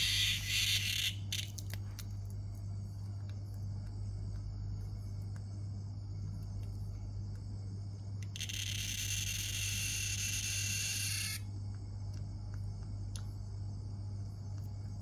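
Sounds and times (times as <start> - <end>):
cicada buzzing: 0.0 - 1.6, 8.2 - 11.5
high insect drone: 0.0 - 15.0
low electrical hum: 0.0 - 15.0.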